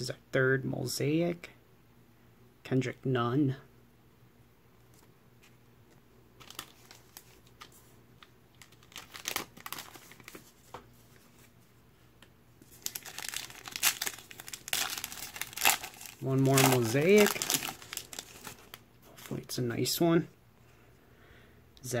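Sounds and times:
foil wrapper crinkling and tearing: 6.4 - 7.7, 8.5 - 10.5, 12.6 - 19.4.

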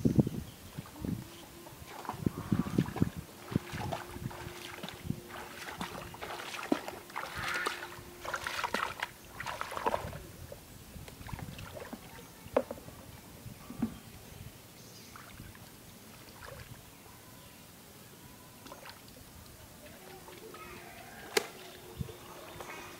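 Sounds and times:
feet splashing through water: 0.8 - 10.3, 11.1 - 12.2, 15.1 - 16.8, 20.0 - 22.9
hands splashing in water: 1.8 - 10.2.

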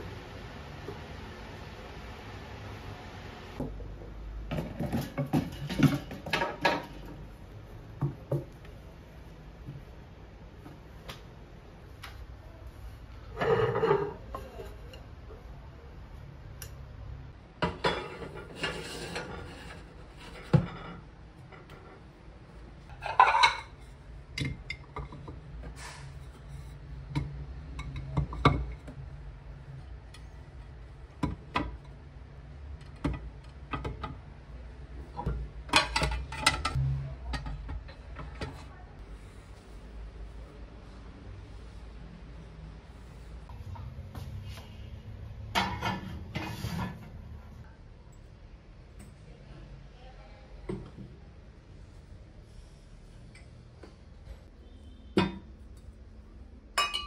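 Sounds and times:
dishes clattering: 4.5 - 7.2, 13.3 - 15.0, 17.6 - 21.8, 22.9 - 25.4, 35.2 - 36.8, 45.5 - 47.0, 56.8 - 57.0
ceramic plates clinking: 13.3 - 15.0, 22.9 - 25.3, 56.8 - 57.0.

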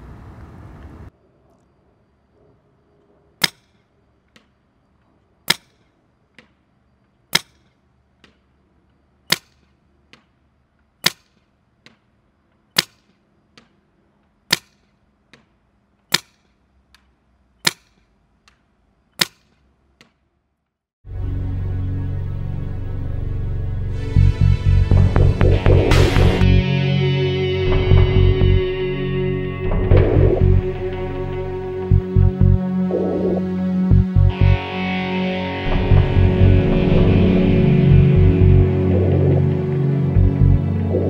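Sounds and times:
paintball marker shots: 5.4 - 6.6, 7.3 - 8.4, 9.3 - 10.4, 11.0 - 12.1, 12.7 - 13.8, 14.5 - 20.2.

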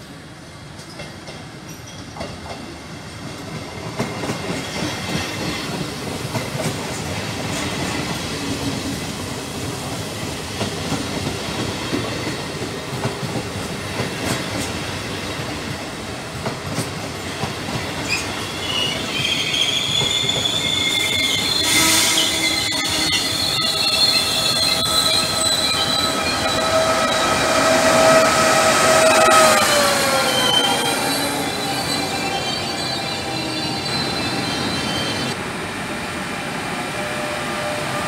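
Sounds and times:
train wheels rumbling on rails: 0.0 - 38.0
brakes squealing: 18.7 - 35.4.

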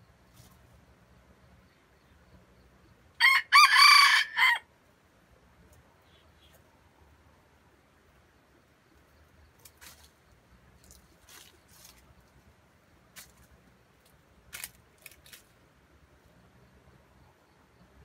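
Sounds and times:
footsteps on dry leaves: 9.7 - 10.2, 10.8 - 12.4, 13.1 - 13.5, 14.5 - 15.5.

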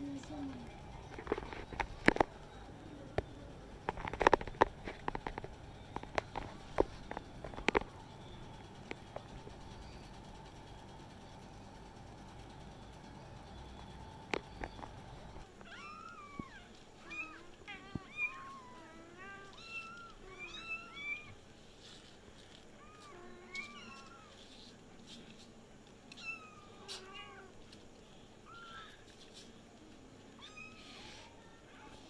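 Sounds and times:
kittens mewing: 15.6 - 21.4.

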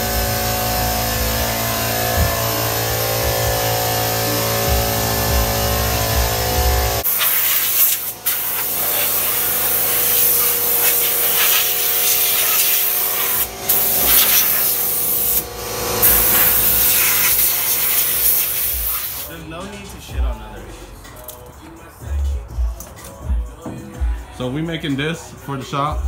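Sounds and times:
music: 0.0 - 7.1, 13.4 - 26.0
air spray gun hissing: 7.0 - 19.4.

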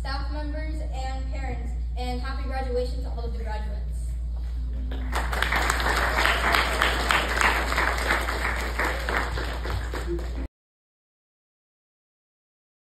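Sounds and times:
low steady hum: 0.0 - 10.5
audience applauding: 4.9 - 10.5.

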